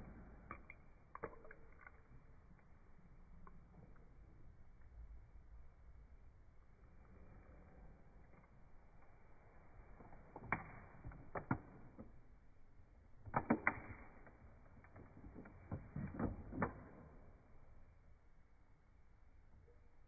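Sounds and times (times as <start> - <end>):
plastic toy clicks and knocks: 13.2 - 17.3.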